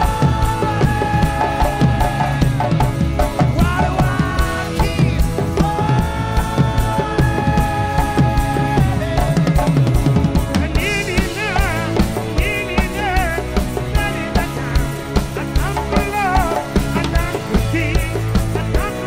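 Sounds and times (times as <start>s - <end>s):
drum kit beat: 0.0s - 19.0s
live band music: 0.0s - 19.0s
man singing: 0.0s - 19.0s.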